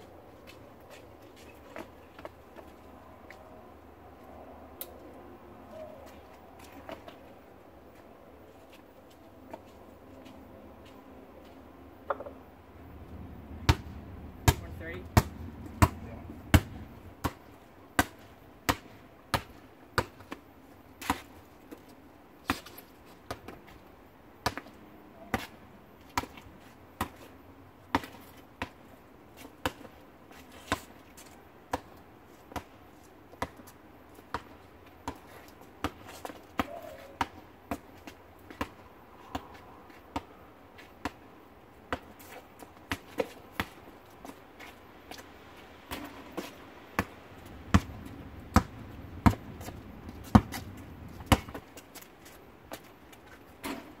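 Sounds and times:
basketball bouncing on asphalt: 12.0s - 12.4s, 13.0s - 20.4s, 24.4s - 26.4s, 27.9s - 30.0s, 30.6s - 44.4s, 45.9s - 52.1s.

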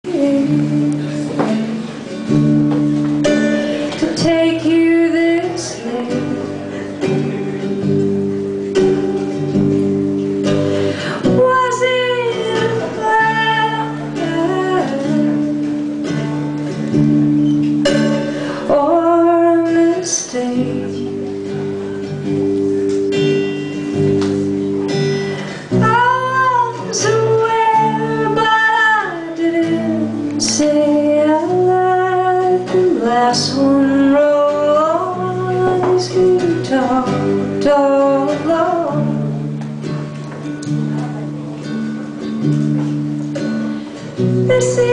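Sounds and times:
woman singing: 0.0s - 7.4s, 10.4s - 16.7s, 17.9s - 21.7s, 25.6s - 39.5s, 44.2s - 44.9s
acoustic guitar chords: 0.0s - 44.9s.

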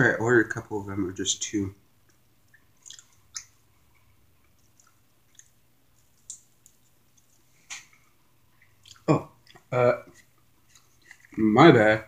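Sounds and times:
chewing and biting smacks: 2.8s - 3.6s, 4.6s - 7.9s, 8.6s - 9.7s.

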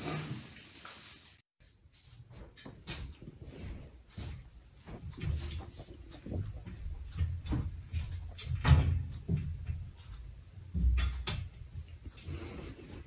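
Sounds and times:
metal drying rack rattling: 6.7s - 12.3s.

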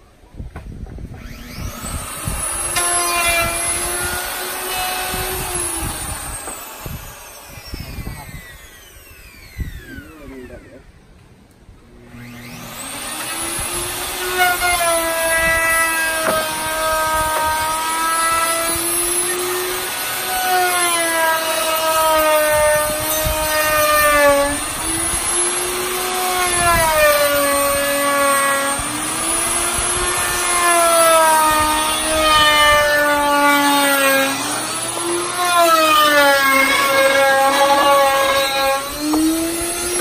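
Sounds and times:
electric router cutting wood: 0.9s - 10.8s, 11.9s - 40.0s.

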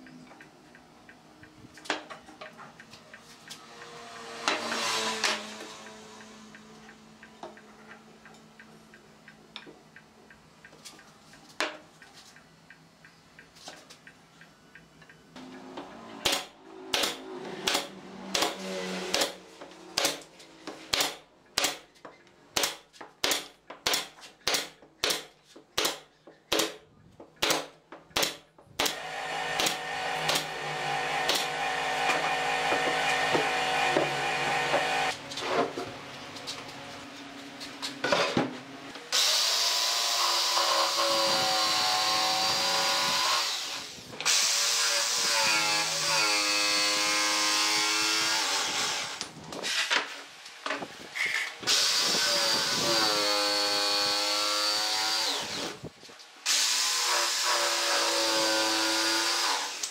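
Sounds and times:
mechanical hum: 0.0s - 23.0s, 28.1s - 59.9s
jigsaw cutting wood: 4.0s - 5.7s, 28.8s - 35.2s, 39.1s - 49.3s, 51.6s - 55.8s, 56.4s - 59.9s
nail gun shots into wood: 16.2s - 19.4s, 20.0s - 20.2s, 20.9s - 21.8s, 22.6s - 26.8s, 27.4s - 29.0s.

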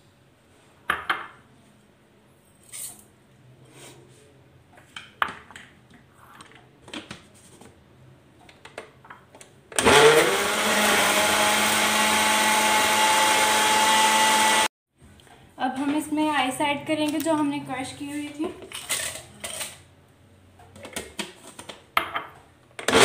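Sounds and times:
electric blender running: 9.8s - 14.7s.

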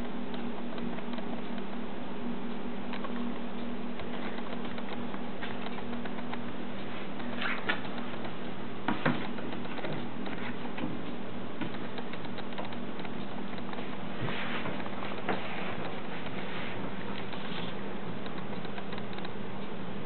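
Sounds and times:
low hum and hiss: 0.0s - 20.0s
record clicks and knocks on turntable: 4.0s - 6.5s, 7.2s - 14.1s.

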